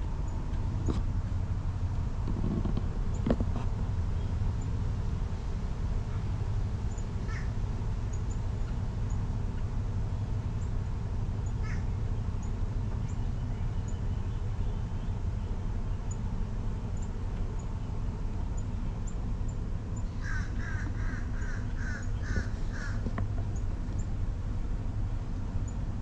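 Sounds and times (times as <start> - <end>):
steady low rumble: 0.0 - 26.0
short animal calls: 20.2 - 23.1.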